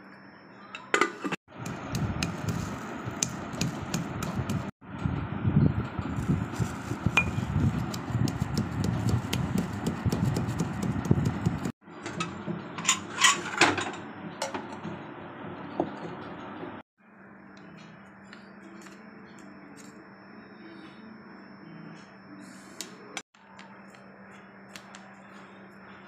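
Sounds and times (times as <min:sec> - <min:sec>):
pestle pounding dull thumps: 0:01.5 - 0:04.7, 0:07.2 - 0:11.7.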